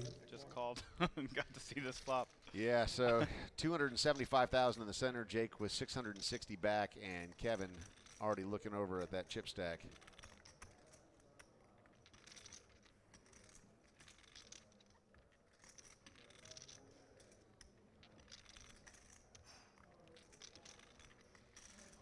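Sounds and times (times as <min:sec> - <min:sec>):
poker chips clicking: 0:09.0 - 0:22.0.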